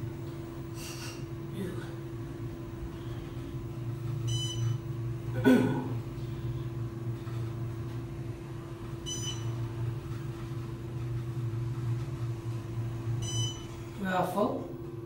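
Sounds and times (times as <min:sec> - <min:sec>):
elevator low hum: 0:00.0 - 0:15.0
short electronic beep: 0:09.1 - 0:09.6, 0:13.2 - 0:13.8.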